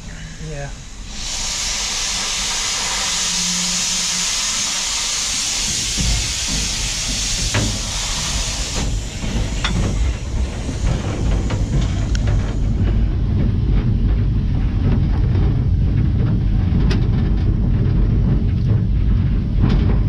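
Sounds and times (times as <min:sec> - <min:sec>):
locomotive steam hissing: 0:00.0 - 0:14.8
low rumble: 0:05.4 - 0:20.0
metal knocks and clanks: 0:05.8 - 0:20.0.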